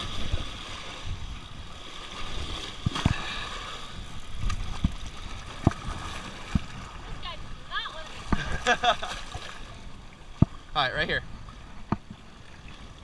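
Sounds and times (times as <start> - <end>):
waves sloshing against rocks: 0.0 - 13.0.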